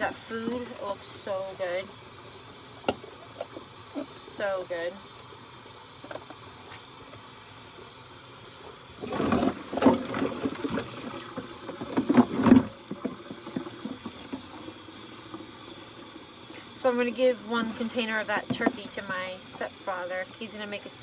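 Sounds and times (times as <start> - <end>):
kitchen tap running: 0.0 - 21.0
dishes splashing and clattering: 9.0 - 14.6.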